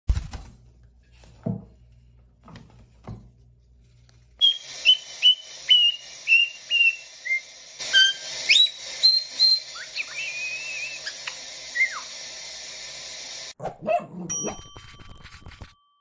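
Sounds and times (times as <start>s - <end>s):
parrot whistling: 4.4s - 12.1s.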